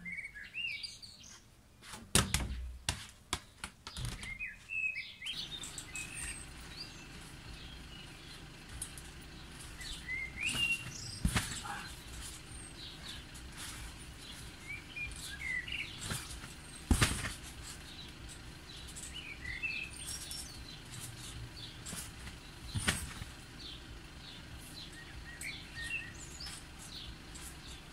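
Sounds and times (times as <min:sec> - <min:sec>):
small birds chirping: 0:00.0 - 0:02.5, 0:03.4 - 0:27.9
sharp thuds: 0:08.7 - 0:23.4.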